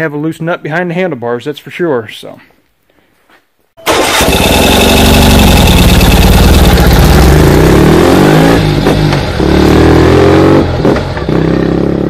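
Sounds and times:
motorcycle engine accelerating: 0:03.9 - 0:12.0.

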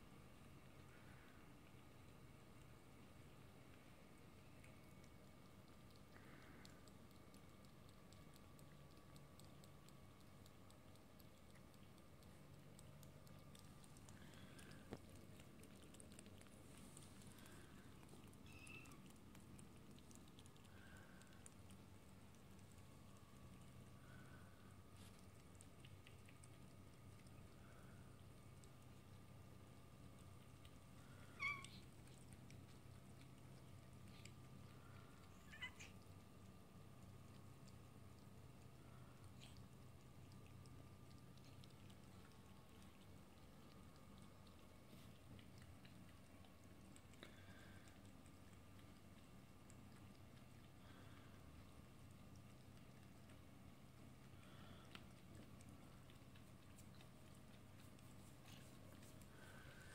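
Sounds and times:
cats chewing and licking: 0:00.0 - 0:59.9
faint low hum: 0:00.0 - 0:59.9
cat meowing: 0:31.4 - 0:31.8, 0:35.4 - 0:35.9.

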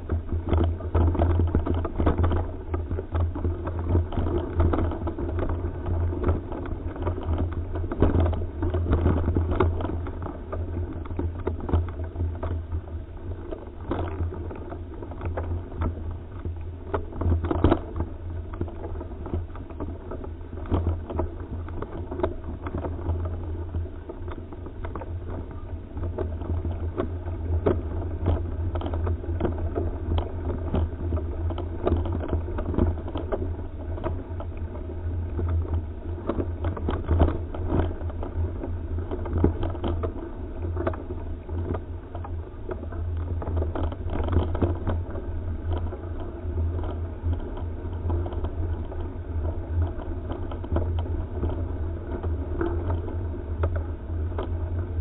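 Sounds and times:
bike rattles and knocks: 0:00.0 - 0:55.0
bike riding low rumble: 0:00.0 - 0:55.0.

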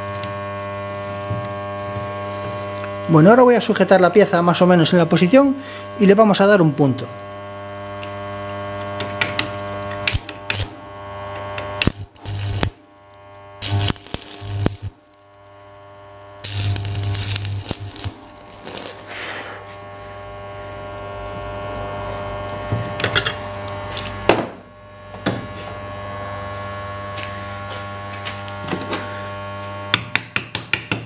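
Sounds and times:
welding arc crackling: 0:00.0 - 0:24.3
welding machine humming: 0:00.0 - 0:30.0.

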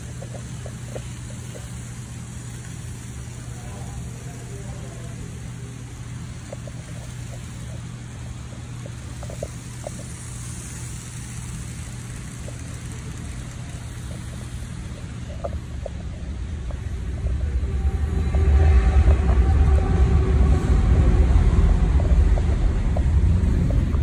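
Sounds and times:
model train humming: 0:00.0 - 0:24.0
wheels clicking on track: 0:00.0 - 0:24.0
low rumble: 0:13.9 - 0:24.0.

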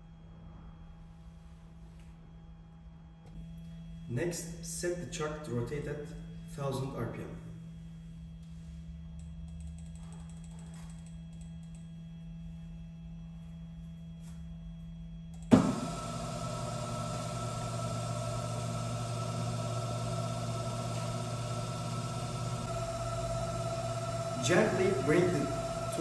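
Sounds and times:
lathe motor hum with whine: 0:11.2 - 0:26.0.

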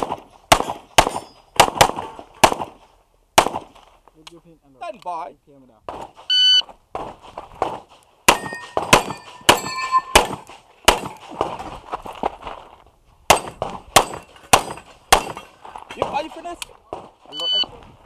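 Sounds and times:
pistol shots: 0:00.0 - 0:02.8, 0:03.4 - 0:03.7, 0:08.3 - 0:11.3, 0:13.3 - 0:15.4
steel plates ringing: 0:08.3 - 0:10.4.

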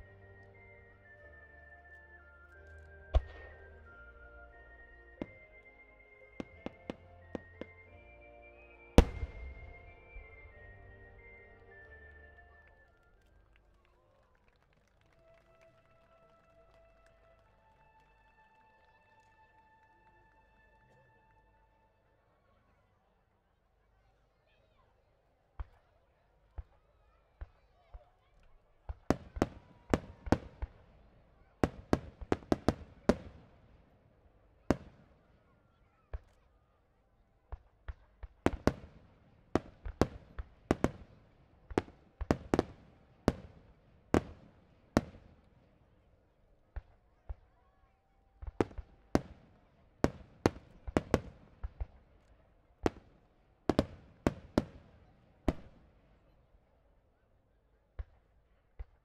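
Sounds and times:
fireworks bursting: 0:09.0 - 0:10.7.

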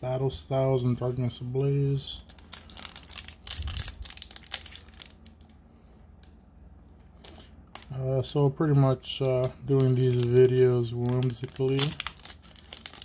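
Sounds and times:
foil wrapper tearing and crinkling: 0:02.2 - 0:05.6, 0:09.3 - 0:13.0.

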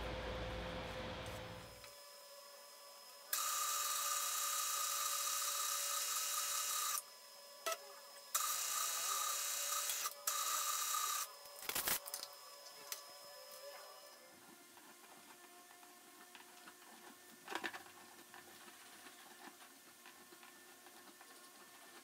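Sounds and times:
drill cutting metal whine: 0:01.7 - 0:14.3.

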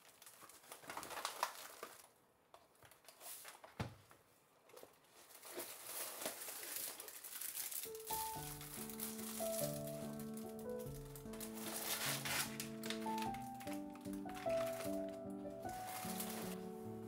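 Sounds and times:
bag and packaging rustling: 0:00.0 - 0:02.1, 0:04.7 - 0:17.0
background music: 0:07.8 - 0:17.0.

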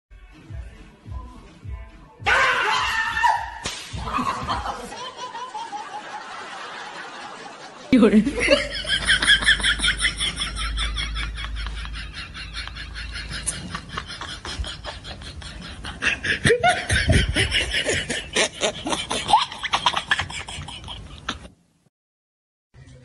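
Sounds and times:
people laughing hard: 0:04.0 - 0:21.5.

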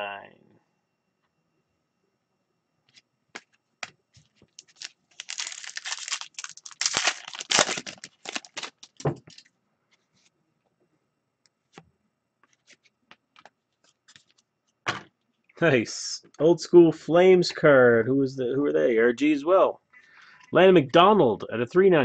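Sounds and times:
cards being handled: 0:02.9 - 0:10.3, 0:12.4 - 0:14.4
shiny wrapper tearing and crinkling: 0:04.5 - 0:09.4.

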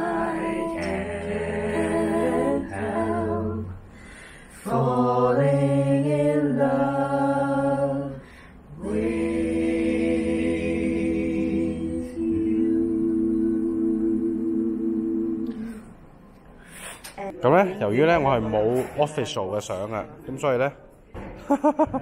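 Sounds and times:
a cappella voices singing: 0:00.0 - 0:16.0.

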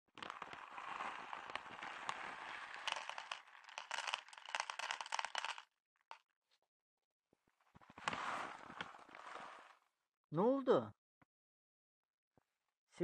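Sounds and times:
plastic bag rustling: 0:00.1 - 0:05.6
kibble rattling into bowl: 0:00.2 - 0:05.6.

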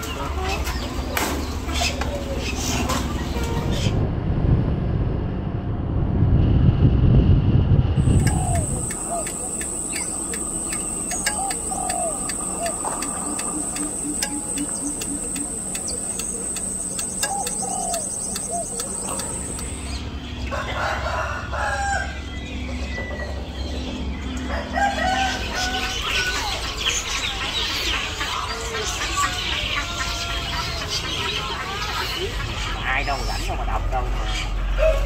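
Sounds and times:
chickens clucking: 0:00.0 - 0:04.0, 0:08.0 - 0:35.0
small birds chirping: 0:00.0 - 0:04.0, 0:08.0 - 0:21.0, 0:21.6 - 0:35.0
low rumble: 0:03.4 - 0:21.0
high-pitched whine: 0:07.8 - 0:20.3
roosters crowing: 0:08.0 - 0:32.8, 0:34.1 - 0:35.0.

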